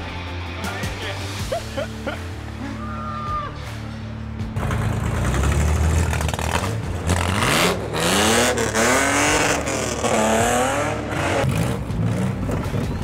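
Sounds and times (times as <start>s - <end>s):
truck engine revving: 4.5s - 13.0s.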